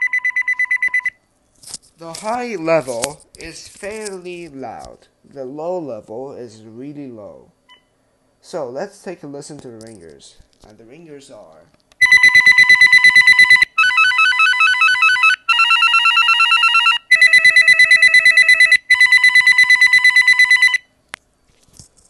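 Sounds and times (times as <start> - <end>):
electronic phone ringtones: 0.0 - 1.1, 12.0 - 20.9.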